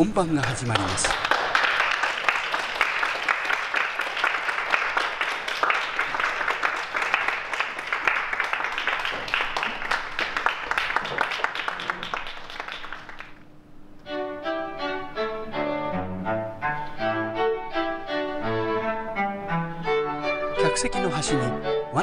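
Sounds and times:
audience applause: 0.0s - 13.5s
string quartet playing: 14.0s - 22.0s.

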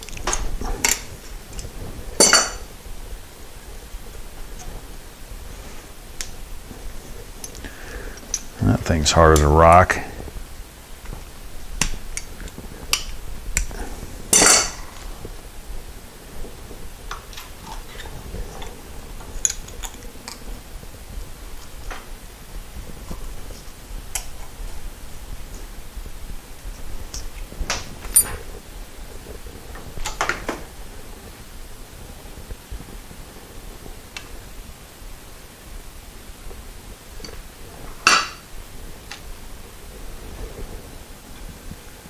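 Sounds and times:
steady low hiss: 0.0s - 42.0s
metal tools clattering: 2.2s - 2.6s, 14.3s - 14.8s.

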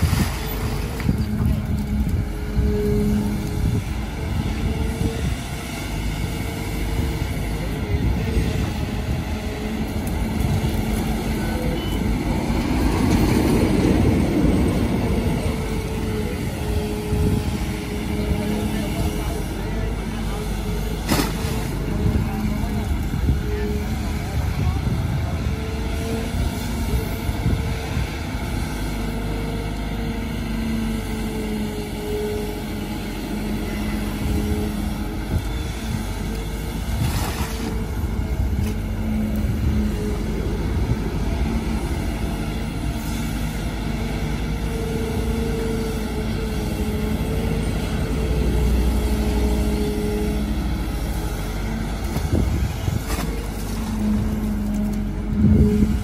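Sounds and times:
excavator diesel engine running: 0.0s - 56.0s.

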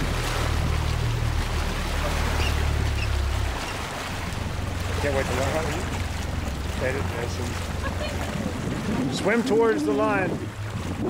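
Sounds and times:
low rumble: 0.0s - 11.0s
water noise: 0.0s - 11.0s
wind: 0.0s - 11.0s.

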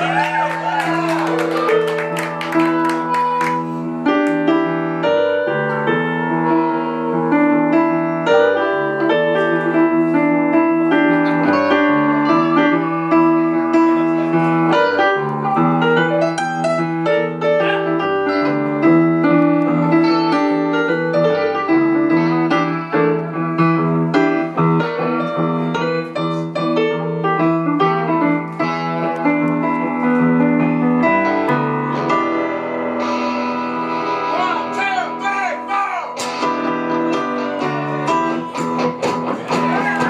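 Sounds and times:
solo piano: 1.2s - 34.3s, 36.4s - 40.0s
band strumming: 31.2s - 40.0s.

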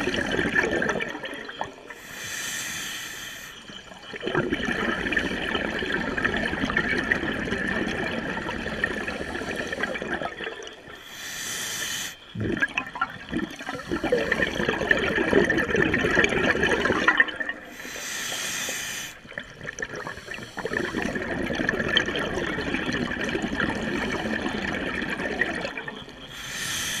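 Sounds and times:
bubbling exhaled air underwater: 0.0s - 2.0s, 3.6s - 11.1s, 12.3s - 18.5s, 19.1s - 26.8s
regulator inhalation hiss: 2.0s - 3.7s, 11.0s - 12.3s, 13.6s - 14.5s, 17.7s - 19.3s, 20.0s - 21.0s, 26.3s - 27.0s.

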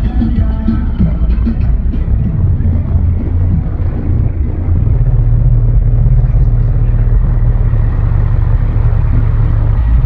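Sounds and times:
subwoofers playing deep bass: 0.0s - 10.0s.

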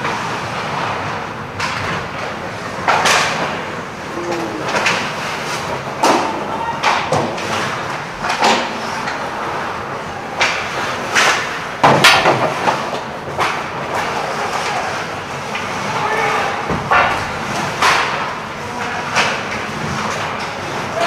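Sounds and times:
hockey sticks and puck knocks: 0.1s - 3.6s, 4.7s - 9.7s, 10.4s - 21.0s
skates scraping ice: 7.1s - 11.7s.

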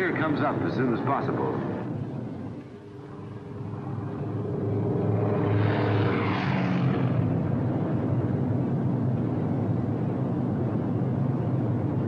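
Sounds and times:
propeller aircraft engines droning: 0.0s - 12.0s.

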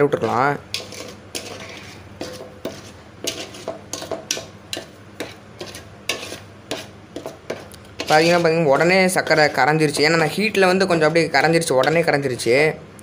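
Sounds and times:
ladle scraping metal pan: 0.2s - 12.2s.

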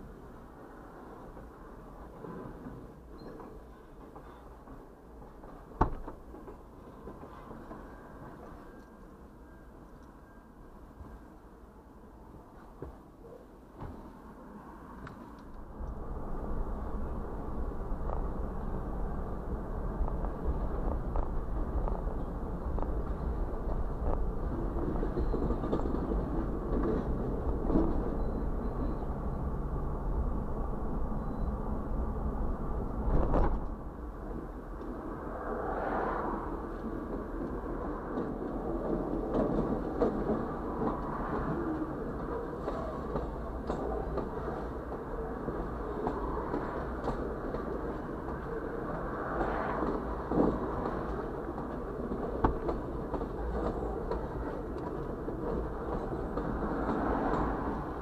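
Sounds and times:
train wheels clicking: 1.2s - 9.2s, 31.1s - 58.0s
vehicle road noise: 13.8s - 58.0s
freight train rumbling past: 14.3s - 58.0s.

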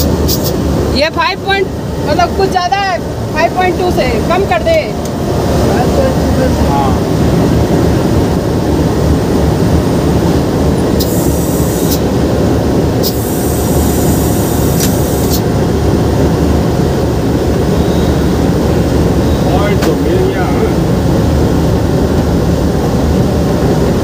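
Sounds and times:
locomotive engine rumble: 0.0s - 24.0s
high hiss: 11.0s - 12.1s, 13.0s - 15.5s.

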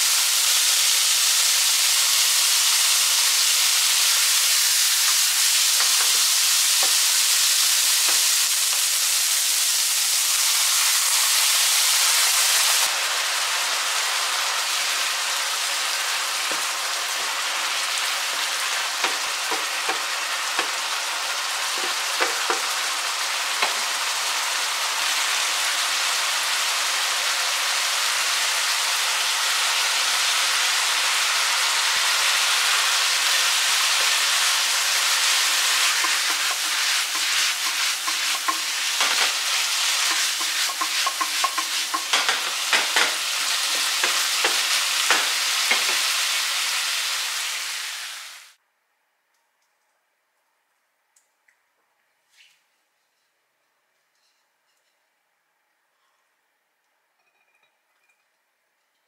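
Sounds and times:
food sizzling in frying pan: 0.0s - 48.6s
pan clicking and scraping: 40.0s - 46.0s.

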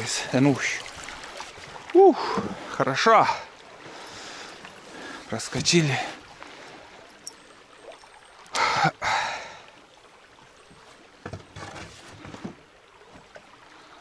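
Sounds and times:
river water rushing: 0.0s - 14.0s
soft knocks and splashes: 0.6s - 2.8s, 10.6s - 13.6s.

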